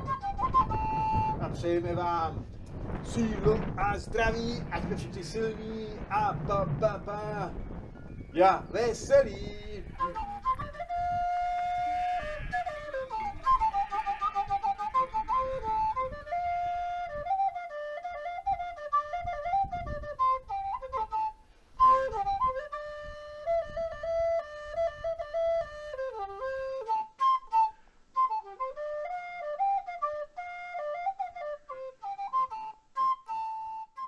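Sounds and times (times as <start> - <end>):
flute melody: 0.0 - 2.4, 9.2 - 34.0.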